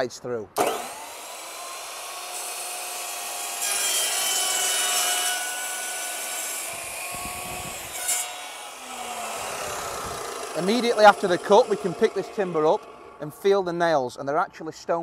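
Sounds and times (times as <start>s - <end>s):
chop saw motor running: 0.6s - 3.6s, 8.5s - 13.3s
saw blade cutting timber: 0.6s - 13.3s.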